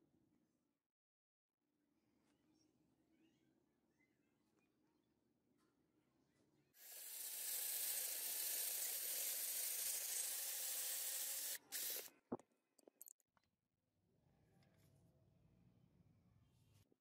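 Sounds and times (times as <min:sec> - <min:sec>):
electric drill boring into metal: 0:06.8 - 0:12.1.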